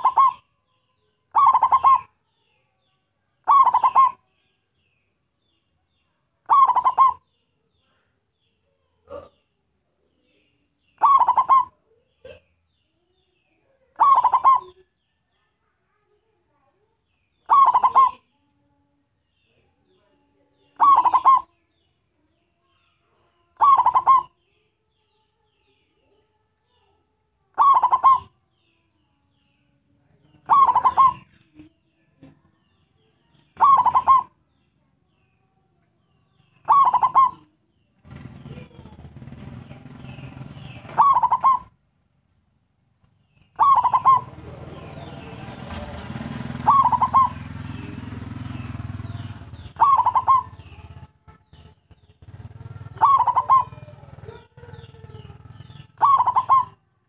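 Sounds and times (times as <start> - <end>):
dove cooing call: 0.0 - 0.7, 1.3 - 2.2, 3.4 - 4.4, 6.4 - 7.8, 10.8 - 12.6, 13.8 - 15.0, 17.4 - 18.3, 20.6 - 21.6, 23.6 - 24.5, 27.5 - 28.8, 30.3 - 34.5, 36.4 - 41.8, 43.3 - 56.9.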